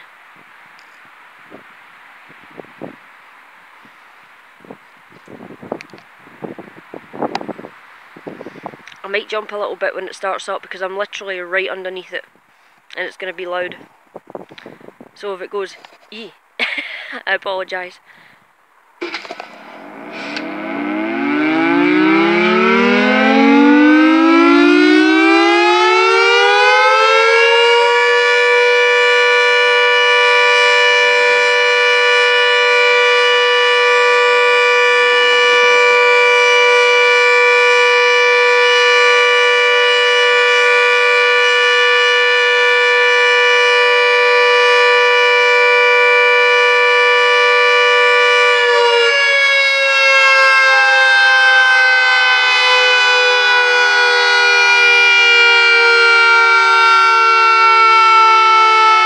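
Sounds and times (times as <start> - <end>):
siren wailing: 19.0 - 59.0.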